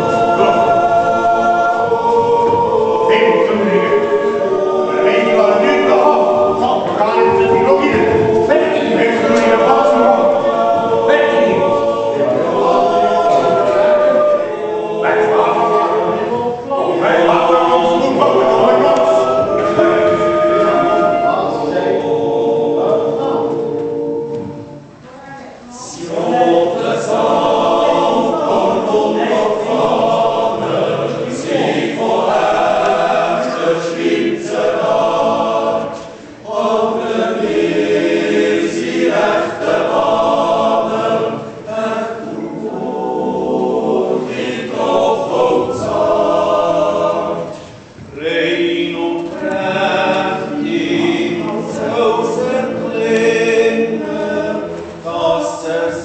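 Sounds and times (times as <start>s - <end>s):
choir yodeling in harmony: 0.0s - 56.0s.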